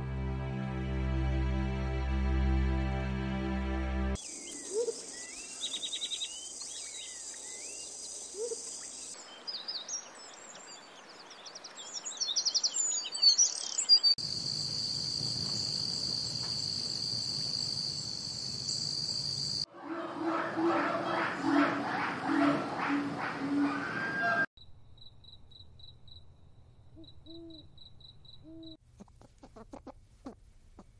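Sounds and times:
high insect chorus: 0:04.2 - 0:10.6, 0:14.2 - 0:19.7, 0:24.6 - 0:28.8
small birds chirping: 0:04.2 - 0:14.2, 0:26.9 - 0:30.9.

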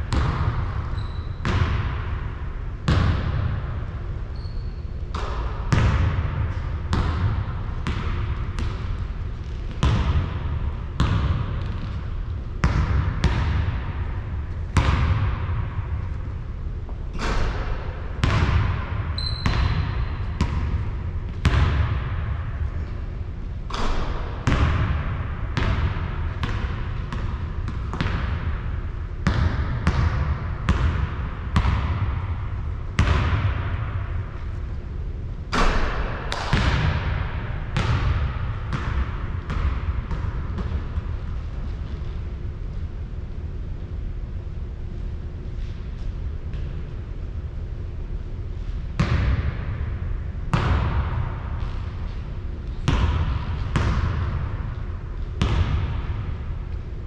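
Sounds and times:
basketball bouncing on hard court: 0:00.0 - 0:16.2, 0:17.1 - 0:22.8, 0:23.7 - 0:34.2, 0:35.5 - 0:42.2, 0:49.0 - 0:49.8, 0:50.5 - 0:52.2, 0:52.8 - 0:54.8, 0:55.4 - 0:56.4.

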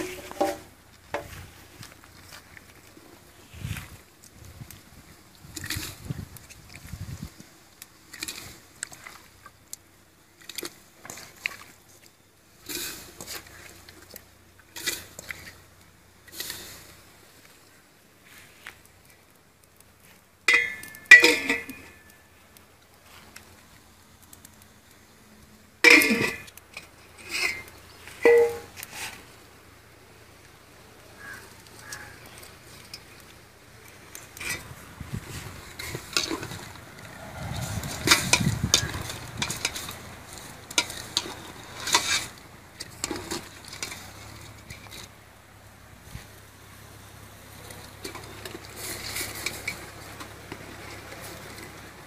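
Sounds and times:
ladle clattering and scraping in pot: 0:00.0 - 0:01.3, 0:20.5 - 0:22.1, 0:25.8 - 0:29.2, 0:35.3 - 0:45.1, 0:48.0 - 0:51.7
metal pot knocks: 0:28.3 - 0:28.7.

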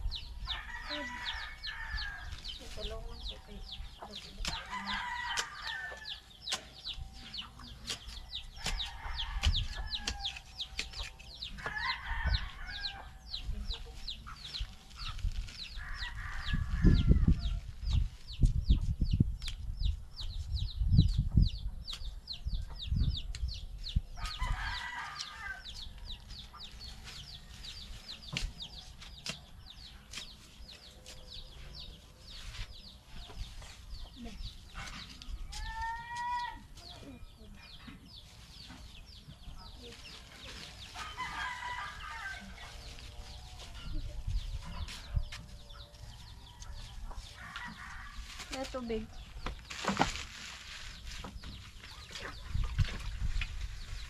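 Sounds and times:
chickens clucking and calling: 0:37.0 - 0:48.4, 0:50.8 - 0:54.0.

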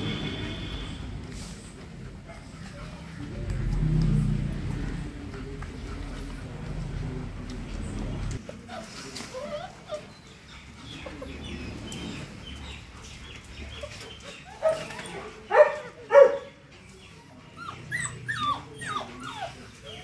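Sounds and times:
puppies whining and yipping: 0:08.4 - 0:16.0, 0:17.4 - 0:20.0
dog barks: 0:15.5 - 0:16.5.

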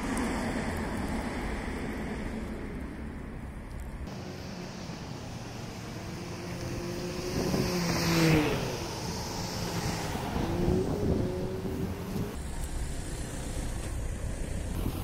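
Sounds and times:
vehicle approaching: 0:03.7 - 0:15.0
car driving past: 0:04.1 - 0:14.0.

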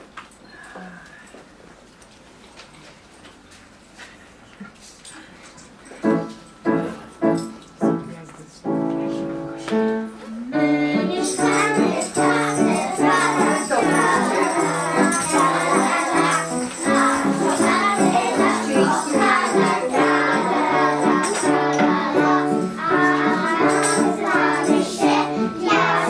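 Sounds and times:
lively children's music: 0:05.8 - 0:26.0
shaker rattling: 0:11.0 - 0:25.1.

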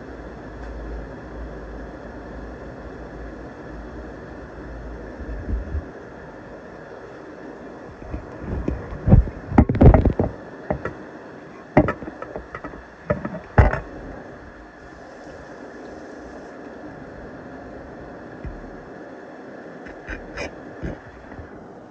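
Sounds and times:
steady hiss: 0:00.0 - 0:21.9
phone handling knocks and rubs: 0:08.1 - 0:11.0, 0:11.6 - 0:14.0, 0:18.4 - 0:18.8, 0:19.9 - 0:21.5.

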